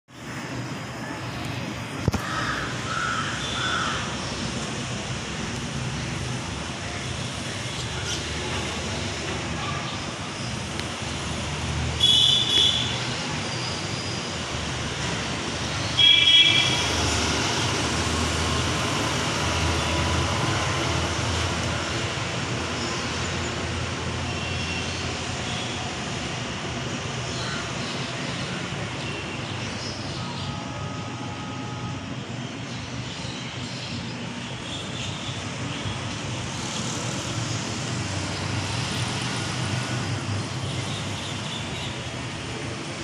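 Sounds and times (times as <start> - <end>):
road traffic: 0.1 - 43.0
vehicle horns honking: 12.0 - 13.0, 16.0 - 17.0.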